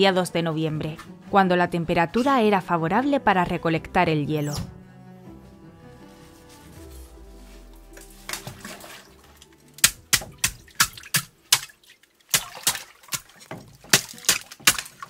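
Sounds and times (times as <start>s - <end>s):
water sloshing: 7.1s - 15.0s
metal tool chipping ice: 12.3s - 15.0s.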